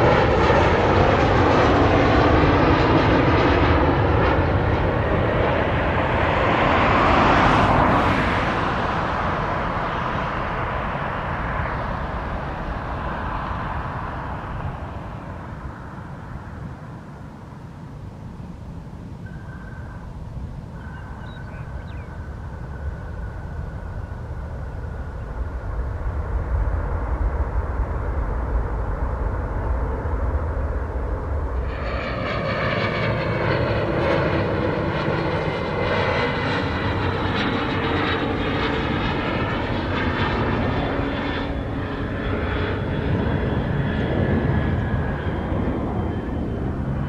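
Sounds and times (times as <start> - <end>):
distant jet engines rumbling: 0.0 - 47.0
jet engine high whine: 0.0 - 47.0.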